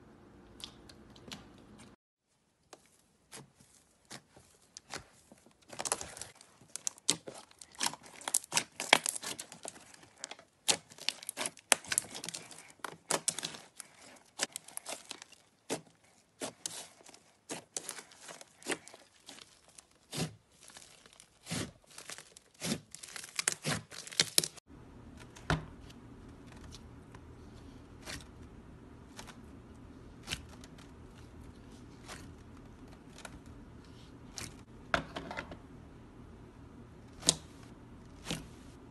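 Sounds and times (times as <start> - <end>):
slime crackling and popping: 5.7 - 15.8, 16.4 - 24.6
low steady hum: 24.7 - 38.9.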